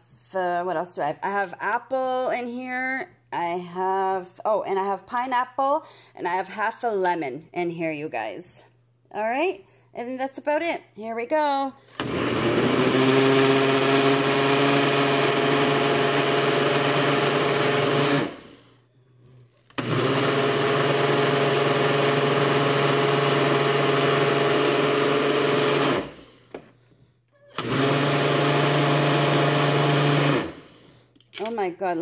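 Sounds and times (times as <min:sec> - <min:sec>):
blender motor humming: 0:11.9 - 0:18.6, 0:19.7 - 0:26.2, 0:27.5 - 0:30.7.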